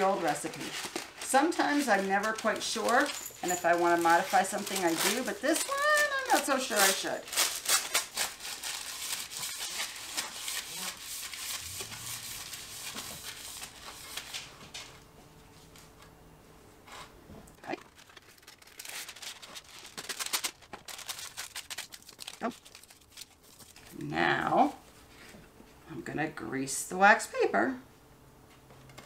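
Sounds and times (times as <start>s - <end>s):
wax paper crinkling: 0.0s - 15.0s, 17.6s - 24.0s.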